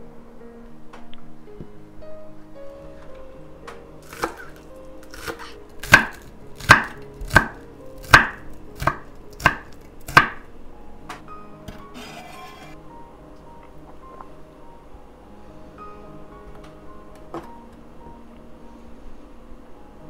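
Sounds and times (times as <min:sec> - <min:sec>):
knife chopping on wooden board: 0:04.0 - 0:10.4.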